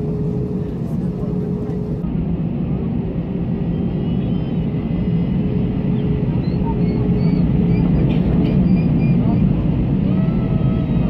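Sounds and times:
jet engines and airflow rumble: 0.0s - 11.0s.

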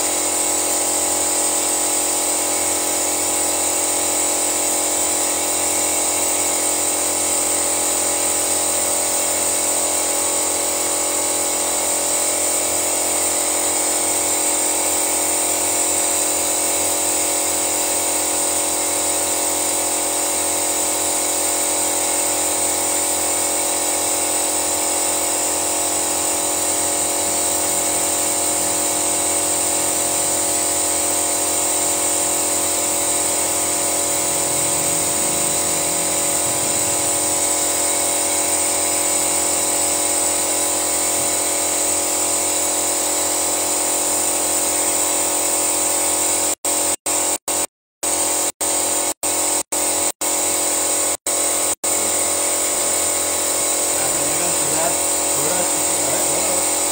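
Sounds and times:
high-pitched pump whine: 0.0s - 56.9s.

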